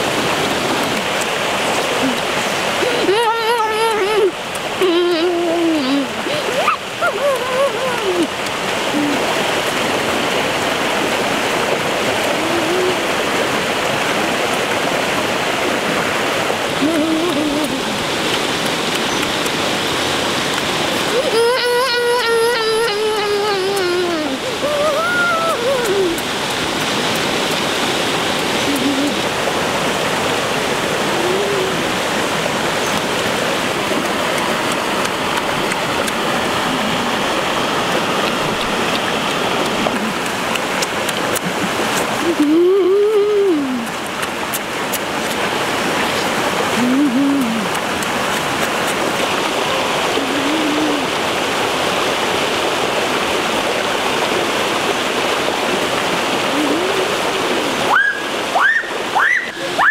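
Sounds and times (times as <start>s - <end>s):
river flowing over rocks: 0.0s - 59.9s
person humming while eating: 1.9s - 9.4s, 12.2s - 13.3s, 16.8s - 18.1s, 21.0s - 26.9s, 28.4s - 29.3s, 31.0s - 32.1s, 39.6s - 44.0s, 46.0s - 48.5s, 49.4s - 51.2s, 56.4s - 57.8s.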